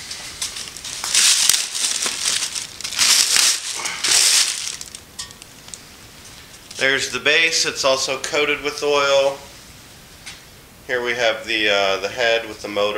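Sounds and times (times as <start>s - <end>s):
plastic wrapping crinkling: 0.0s - 6.4s.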